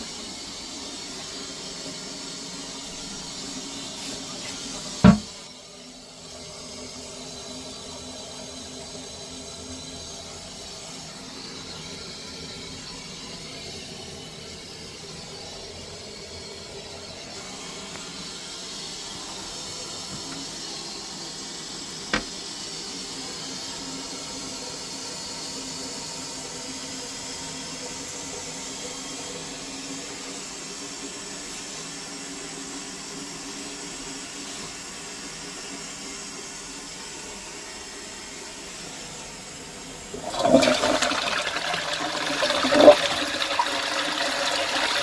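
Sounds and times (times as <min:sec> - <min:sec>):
toilet cistern refilling: 0:01.0 - 0:05.4, 0:40.1 - 0:45.0.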